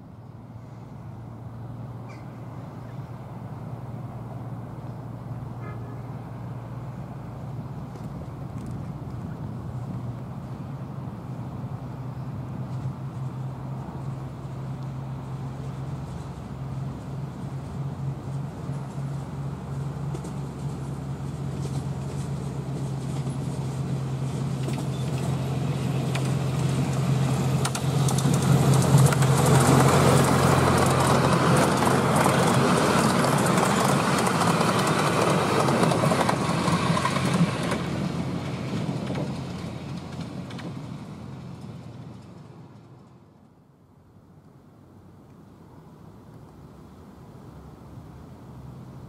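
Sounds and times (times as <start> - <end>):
locomotive engine hum: 0.0 - 49.0
wheel and rail noise: 0.0 - 49.0
run of clicks: 27.6 - 37.9.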